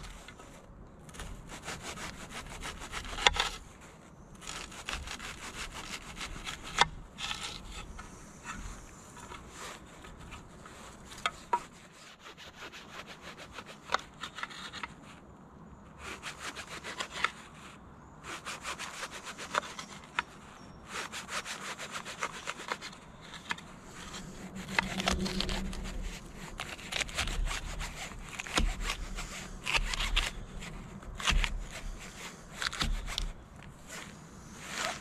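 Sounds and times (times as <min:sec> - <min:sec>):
knife cutting on wood: 0:00.0 - 0:03.7, 0:04.4 - 0:15.1, 0:16.0 - 0:17.5, 0:18.2 - 0:35.0
low rumble: 0:23.7 - 0:28.2.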